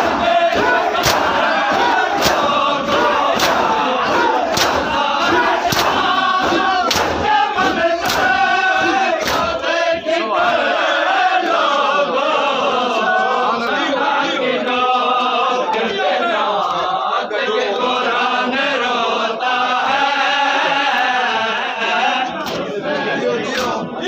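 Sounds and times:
hands slapping chests: 0.0 - 9.7, 22.4 - 22.7, 23.5 - 23.9
crowd of men chanting: 0.0 - 24.0.

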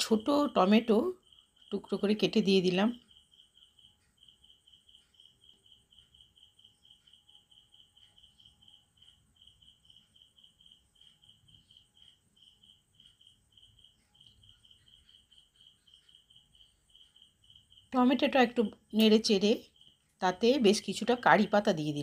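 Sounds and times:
cricket chirping: 0.0 - 22.0.

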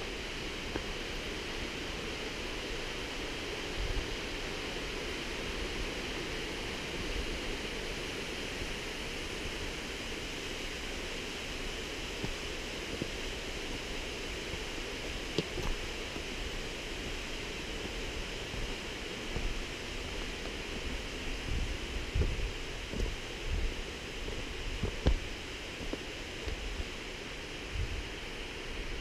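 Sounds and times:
footsteps on rocky path: 14.5 - 27.0.

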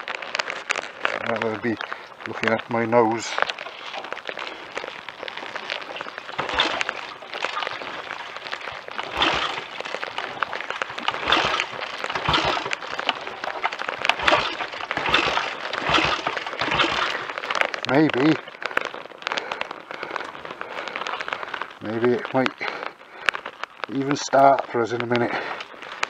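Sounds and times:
motorcycle kick start thuds: 9.1 - 9.7, 11.2 - 13.2, 14.1 - 17.2.

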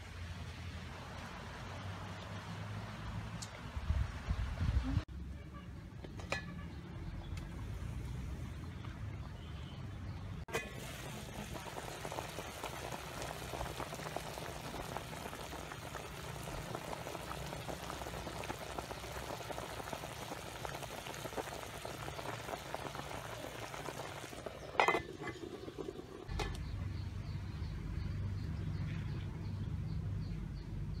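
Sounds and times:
soup bubbling in a pot: 10.5 - 26.8.

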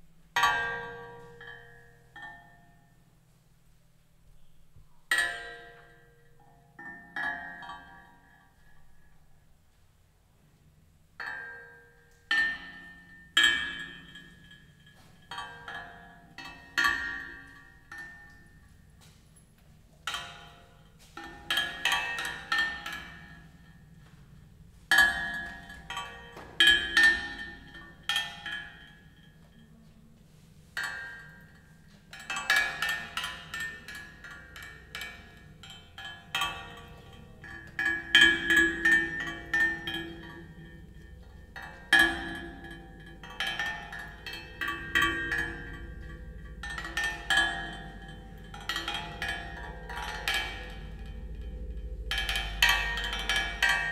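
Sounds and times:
low hum: 16.3 - 53.9
metal clinking strikes: 30.8 - 53.9.

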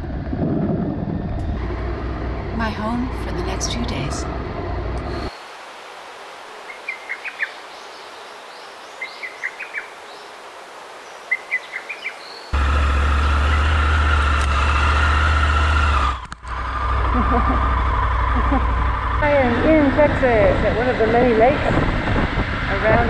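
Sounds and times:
motorcycle riding rumble: 0.0 - 5.4, 12.5 - 23.0
bird chirping: 6.7 - 10.4, 11.0 - 13.7.

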